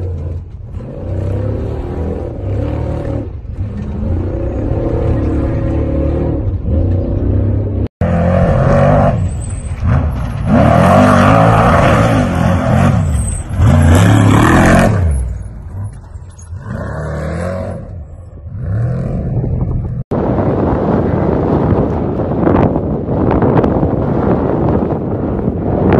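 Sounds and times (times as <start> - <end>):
truck engine revving hard: 0.0 - 19.8.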